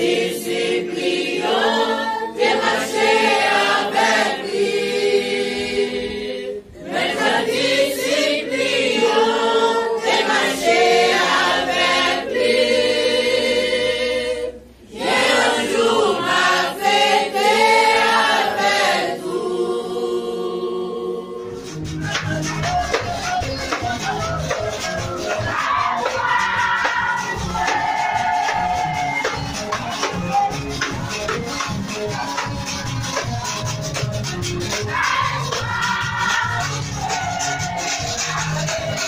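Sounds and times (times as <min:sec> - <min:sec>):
congregation singing a hymn: 0:00.0 - 0:30.2, 0:34.6 - 0:39.0
band music with electronic keyboard: 0:21.5 - 0:35.8.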